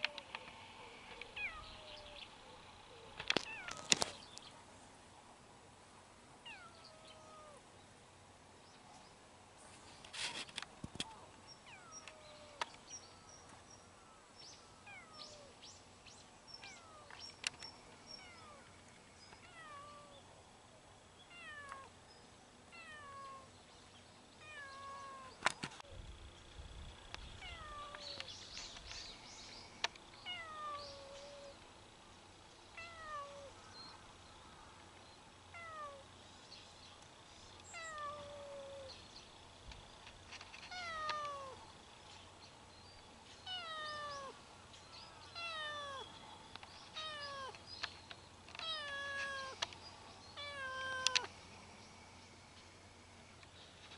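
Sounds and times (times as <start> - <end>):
cat meowing: 22.7 - 23.5, 24.4 - 25.3, 32.8 - 33.5, 35.6 - 36.0, 37.8 - 38.9, 40.7 - 41.6, 43.5 - 44.4, 45.4 - 46.1, 47.0 - 47.6, 48.6 - 49.6, 50.4 - 51.3.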